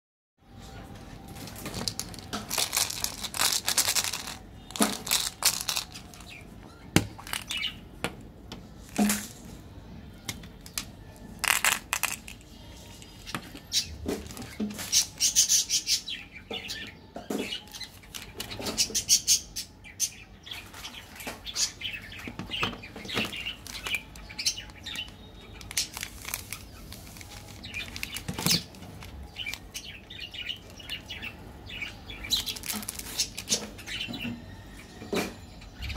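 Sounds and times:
plastic wrappers crinkling: 1.2 - 6.4, 7.2 - 7.7, 8.9 - 9.4, 10.6 - 15.4, 23.1 - 31.2, 32.2 - 33.8.

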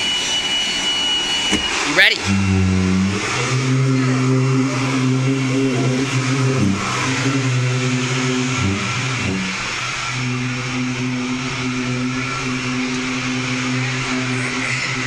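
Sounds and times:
leaf blower running: 0.0 - 15.0.

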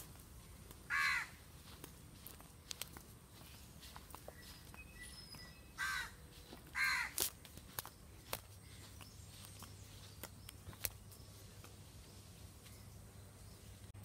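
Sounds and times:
crow cawing: 0.9 - 1.4, 5.8 - 7.3.

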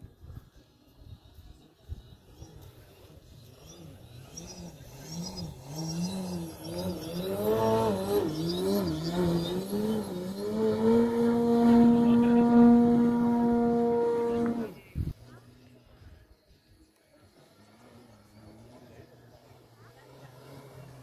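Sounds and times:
rc helicopter whining: 2.2 - 15.1.

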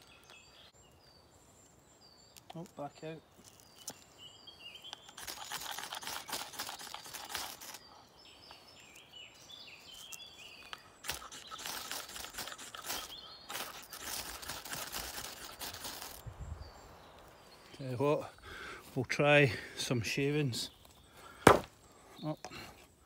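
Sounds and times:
birds calling: 0.0 - 23.0
knife scraping ferro rod: 11.0 - 16.2.

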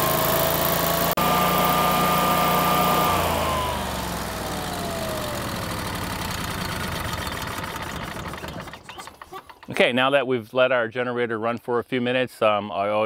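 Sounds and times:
generator engine whining: 0.0 - 10.0.

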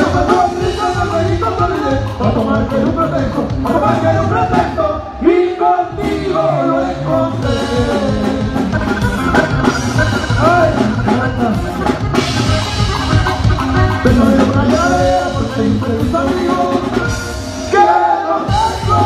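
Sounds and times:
accordion: 0.0 - 19.0
bass: 0.0 - 19.0
drum kit: 0.0 - 19.0
person singing: 0.0 - 19.0.

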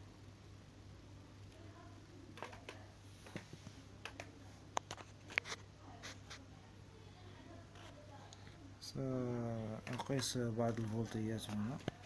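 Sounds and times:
low steady hum: 0.0 - 12.0
small clicks and light taps: 2.4 - 5.6.

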